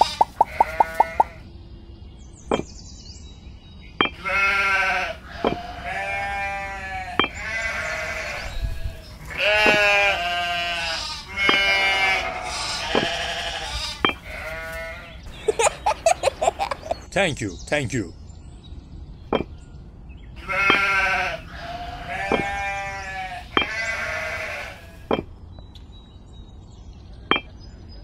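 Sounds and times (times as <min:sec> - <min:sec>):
livestock bleating: 0:00.0 - 0:01.4, 0:04.2 - 0:15.6, 0:20.4 - 0:25.1.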